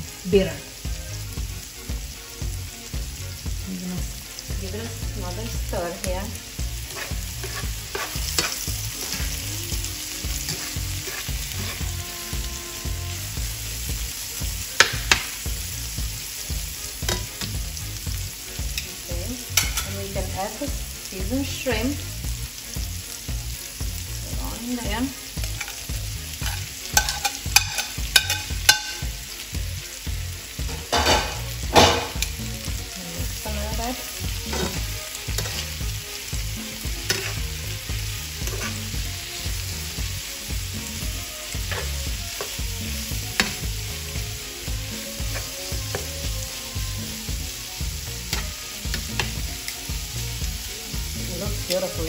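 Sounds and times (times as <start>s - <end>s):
shrimp sizzling in a pan: 0.0s - 52.0s
utensil clicking against pan: 26.4s - 29.0s.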